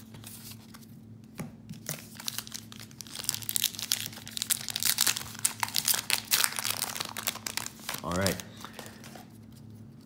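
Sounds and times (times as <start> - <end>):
card pack wrapper crinkling and tearing: 1.8 - 9.3.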